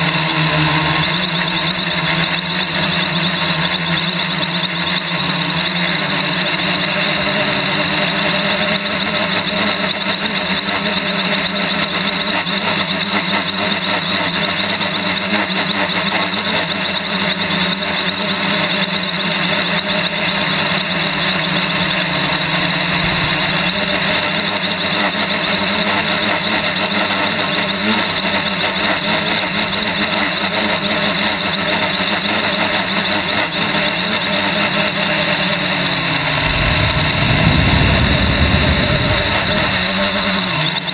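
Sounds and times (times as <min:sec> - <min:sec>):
drone motors whining: 0:16.7 - 0:40.9
rush of air: 0:22.7 - 0:24.1, 0:36.0 - 0:40.6.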